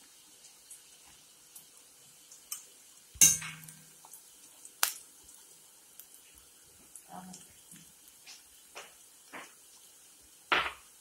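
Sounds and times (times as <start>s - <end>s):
frying in oil sizzle: 0.0s - 11.0s
knock: 10.5s - 10.8s.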